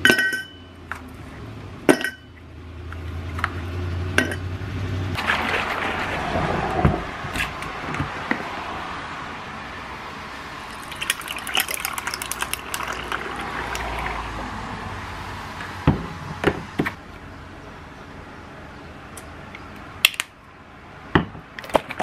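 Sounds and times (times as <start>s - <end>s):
coffee pouring trickle: 10.6s - 14.3s
ice cubes crackling and clinking: 10.7s - 14.1s.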